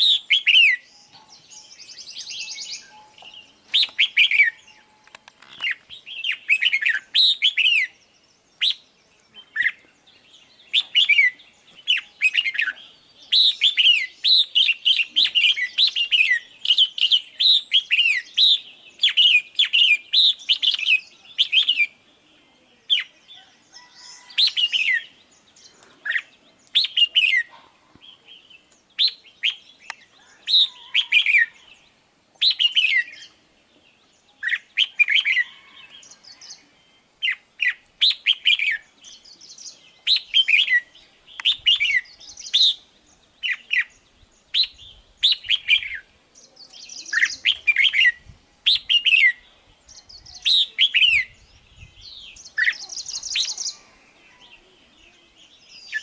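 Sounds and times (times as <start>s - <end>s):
bulbul chirping and whistling: 0.0s - 8.0s, 10.7s - 21.9s, 32.4s - 33.3s, 37.2s - 38.8s, 40.0s - 43.9s, 44.5s - 46.1s, 47.0s - 49.4s.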